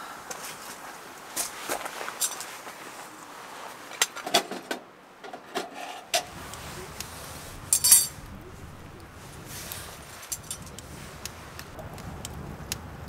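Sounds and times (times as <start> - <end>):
small metal items clinking: 2.2 - 2.5, 7.7 - 8.2, 10.2 - 10.7.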